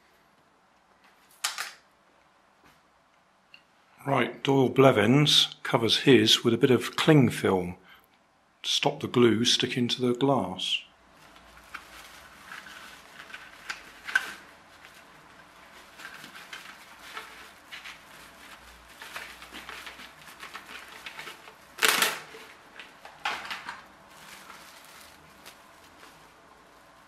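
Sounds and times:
cling film crinkling: 11.1 - 27.0.

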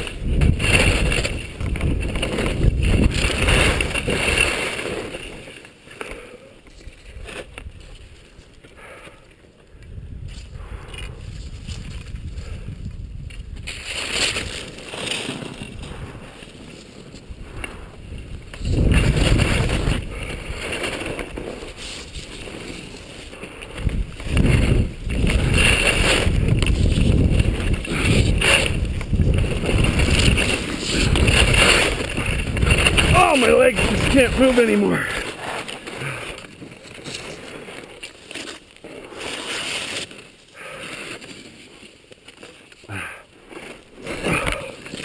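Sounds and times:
wind buffeting microphone: 0.0 - 4.4, 9.7 - 14.6, 17.3 - 21.7, 23.4 - 35.2
skis scraping over packed snow: 0.0 - 45.0.

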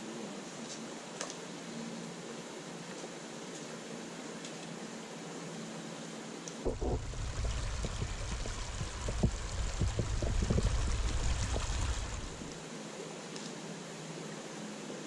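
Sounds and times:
brook water running: 6.6 - 12.7
low rumble with gurgling pops: 6.7 - 12.6.

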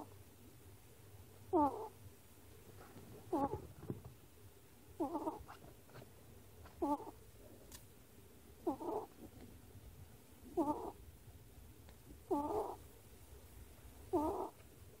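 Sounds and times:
ferret snoring: 1.5 - 2.0, 3.3 - 3.6, 5.0 - 5.5, 6.8 - 7.2, 8.6 - 9.1, 10.5 - 11.0, 12.3 - 12.8, 14.1 - 14.6.

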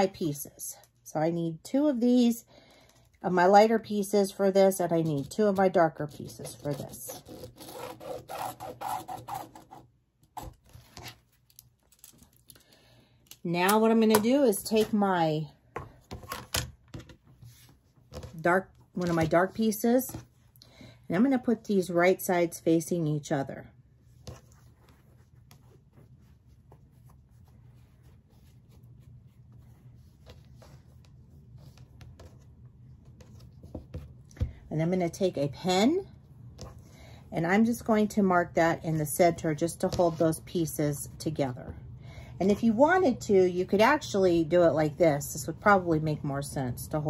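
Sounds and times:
low steady hum: 0.0 - 47.0
pen scratching on fabric: 5.0 - 11.1.

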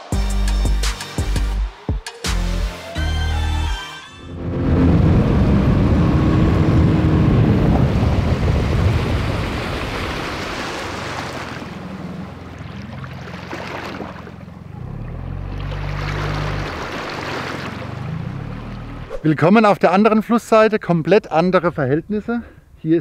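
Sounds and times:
boat motor running: 4.3 - 19.1
water rushing: 4.3 - 19.5
wind buffeting microphone: 4.4 - 12.8.

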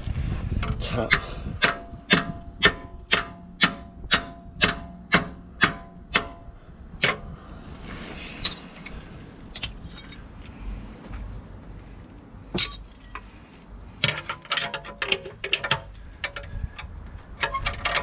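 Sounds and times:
metal clinks: 9.8 - 10.2, 12.6 - 13.2.

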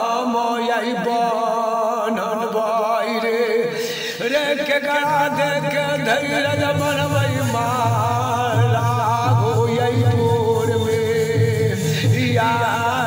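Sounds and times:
steady drone: 5.6 - 13.0.

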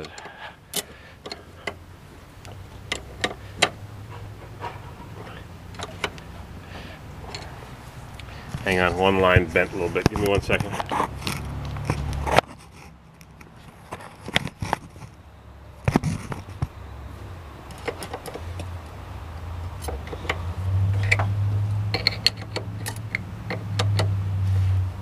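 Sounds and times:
wrench clicking on metal fittings: 21.9 - 24.2.

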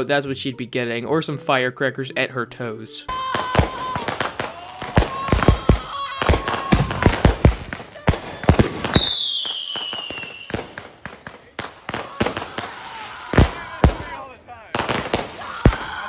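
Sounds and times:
woman yelling: 3.1 - 4.2, 4.8 - 7.0
fireworks bangs and pops: 3.2 - 16.0
shrill falling whistle: 8.9 - 12.0.

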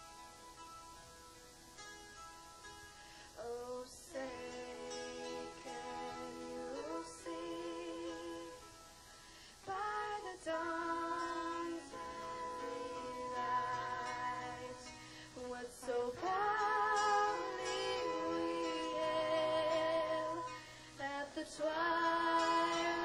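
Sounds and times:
woman singing: 3.4 - 8.8, 9.6 - 23.0.

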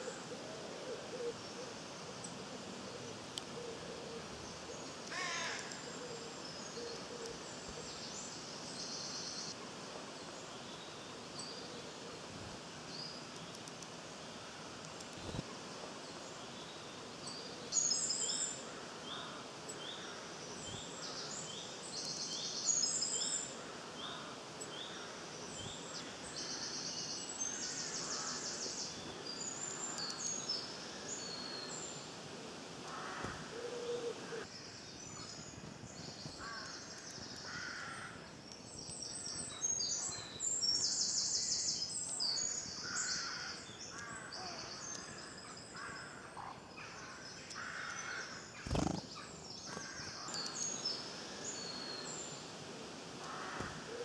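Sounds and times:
outdoor background hiss: 0.0 - 54.0
small birds singing: 14.8 - 32.2, 34.4 - 52.6.

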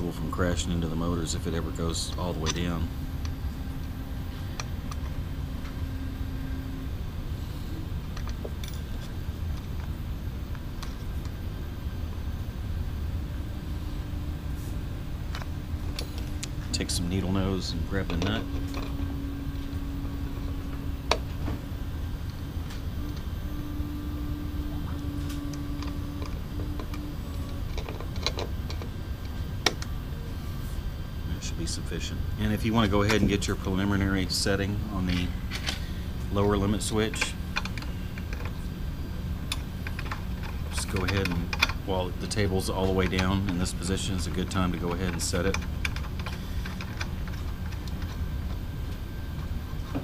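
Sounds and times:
low background hum: 0.0 - 50.0
allen key clicking on metal: 39.5 - 41.9.

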